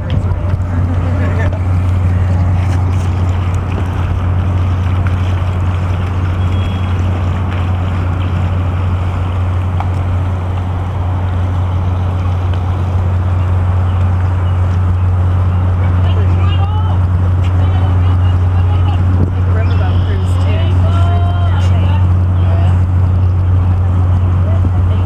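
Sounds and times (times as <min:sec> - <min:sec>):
low rumbling drone: 0:00.0 - 0:25.0.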